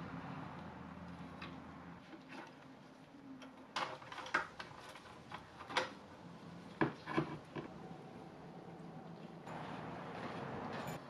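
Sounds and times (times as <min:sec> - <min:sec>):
metallic clinks and clanks: 0:10.7 - 0:11.0.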